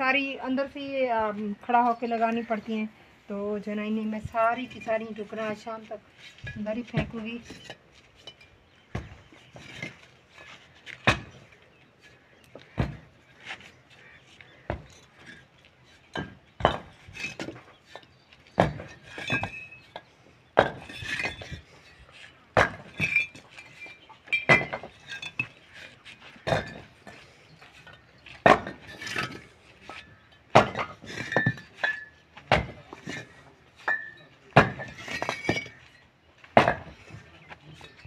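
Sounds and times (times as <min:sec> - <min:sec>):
bricks clinking onto a pile: 0:06.3 - 0:13.1, 0:14.7 - 0:38.0.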